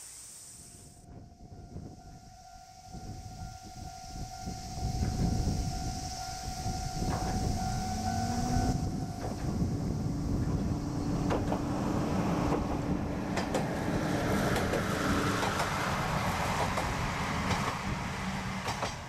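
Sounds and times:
diesel railcar passing: 1.0 - 19.0
level crossing alarm tone: 1.8 - 9.3
wheels clacking: 10.3 - 18.0, 18.6 - 19.0.

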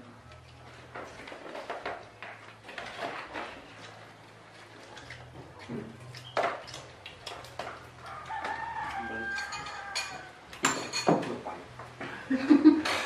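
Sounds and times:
plates and dishes clinking: 5.0 - 13.0
rooster crowing: 8.0 - 10.5.

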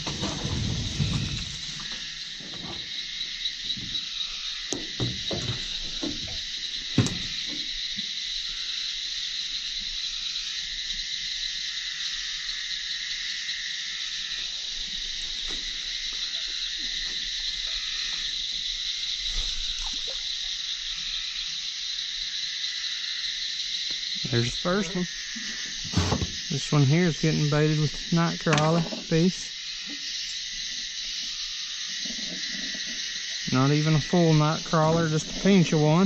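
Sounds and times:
insects and frogs chorus: 0.0 - 36.0
knocks on boat: 4.8 - 6.4.

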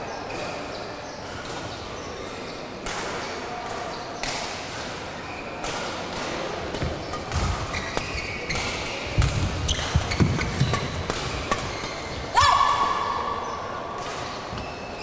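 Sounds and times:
rackets hitting shuttlecock: 5.6 - 12.3.

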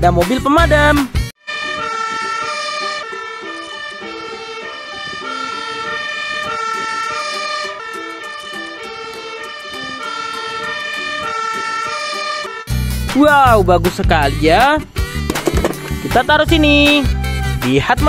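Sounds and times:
fire engine two-tone siren: 1.4 - 12.7.

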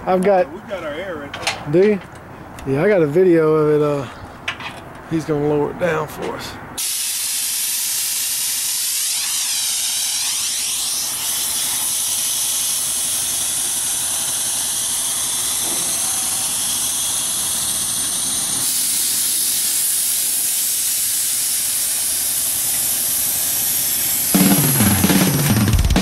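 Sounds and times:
air suspension venting hiss: 6.8 - 26.0.

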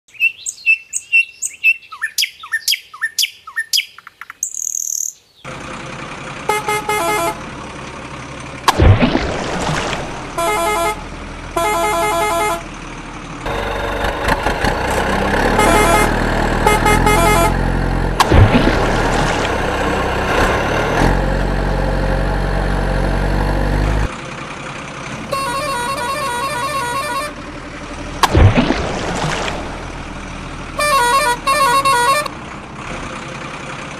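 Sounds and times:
birds chirping: 0.1 - 5.5
truck engine running: 5.5 - 33.9
truck horn honks: 6.4 - 7.6, 10.3 - 12.8, 14.9 - 18.3, 25.2 - 27.5, 30.7 - 32.4
water splash: 8.6 - 10.6, 18.2 - 20.2, 28.2 - 30.3.

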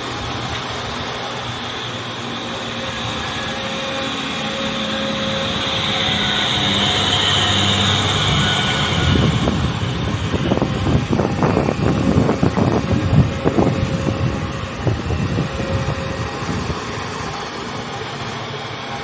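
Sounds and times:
wind buffeting microphone: 5.3 - 18.8.

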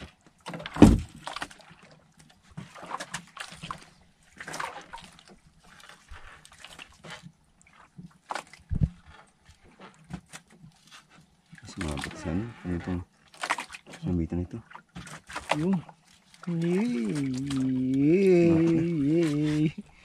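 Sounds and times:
water splashing against hull: 0.0 - 20.0
heavy thump: 0.8 - 1.1.

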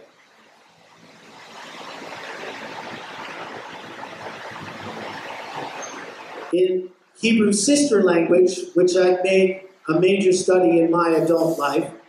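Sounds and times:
steady rushing noise: 0.0 - 8.5.

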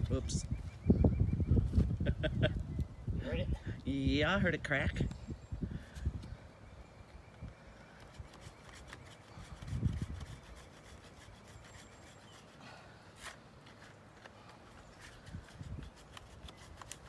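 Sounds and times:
hand saw cutting wood: 8.2 - 13.4.

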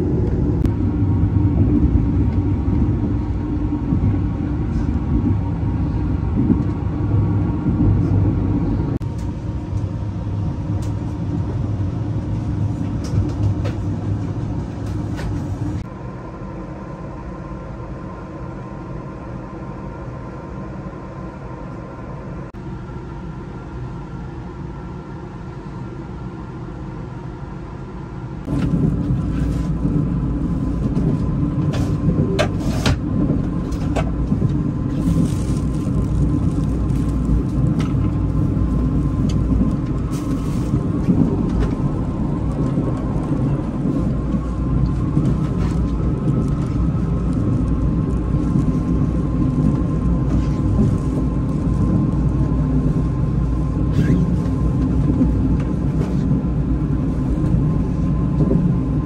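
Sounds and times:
moving vehicle rumble: 0.0 - 59.0.

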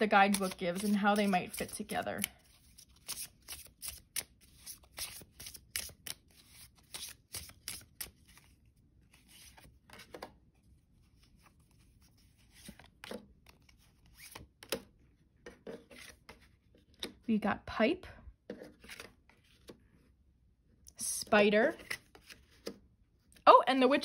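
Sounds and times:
cards being shuffled: 0.2 - 10.3, 11.2 - 14.8, 18.6 - 19.8, 21.7 - 22.8.

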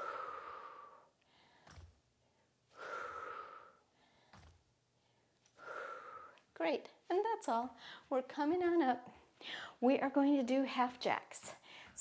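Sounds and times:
woman exhaling forcefully: 0.0 - 1.1, 2.8 - 3.8, 5.6 - 6.4
soft thumps: 1.6 - 2.1, 4.2 - 4.7.

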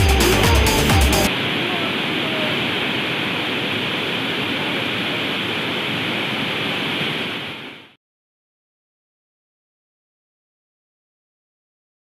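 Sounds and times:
waterfall rushing over rock: 1.2 - 8.0.

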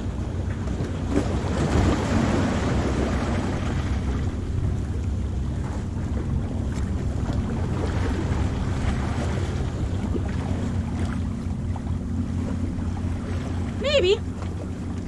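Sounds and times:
sea surf washing against rocks: 1.0 - 11.0.

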